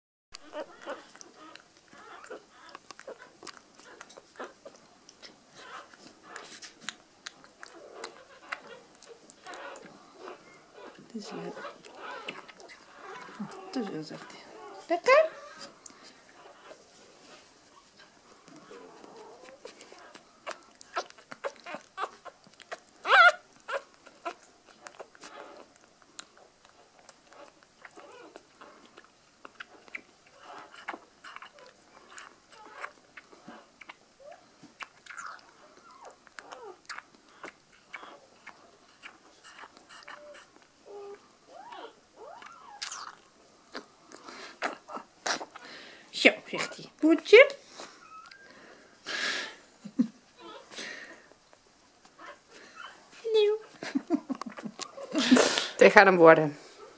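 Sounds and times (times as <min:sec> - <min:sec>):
puppy sucking on bottle: 0:00.4 - 0:45.7.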